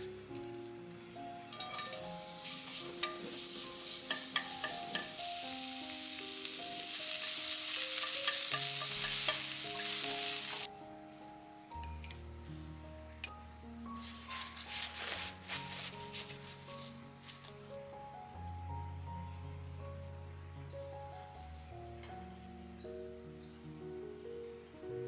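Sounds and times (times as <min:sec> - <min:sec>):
vegetables sizzling in a pan: 0:01.4 - 0:10.7
chopsticks tapping: 0:03.0 - 0:05.4, 0:07.1 - 0:10.7.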